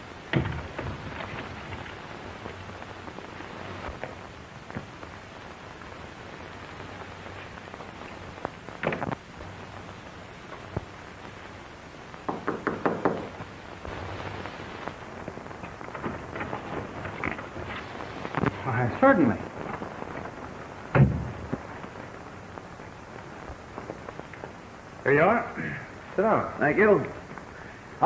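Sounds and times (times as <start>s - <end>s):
old film hiss and crackle: 0.0s - 28.0s
knocking on a door: 12.3s - 13.4s
thump: 21.0s - 21.3s.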